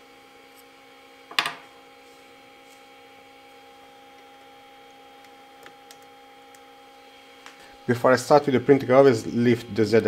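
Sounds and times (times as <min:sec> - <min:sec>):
three d printer humming: 0:02.4 - 0:10.0.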